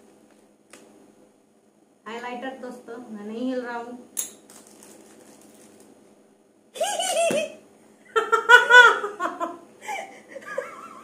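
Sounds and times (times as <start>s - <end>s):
women laughing: 6.8s - 11.0s.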